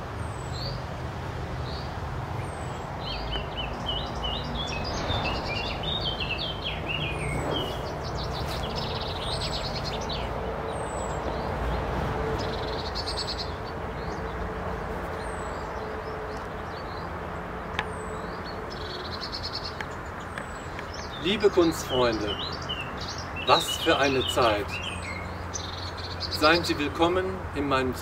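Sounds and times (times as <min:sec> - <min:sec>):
birds chirping and trilling: 0:01.6 - 0:28.0.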